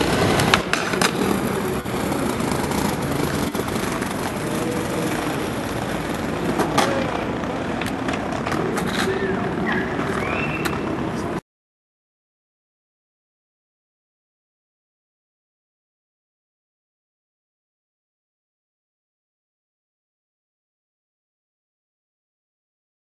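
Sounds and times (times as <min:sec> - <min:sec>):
skateboard clack: 0:00.0 - 0:11.4
skateboard wheels rolling on brick: 0:00.0 - 0:11.4.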